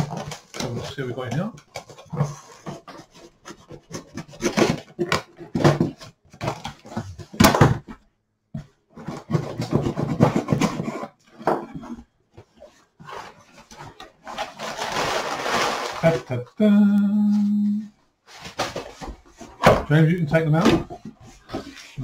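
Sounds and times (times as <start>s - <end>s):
cardboard flaps scraping: 8.9s - 16.2s.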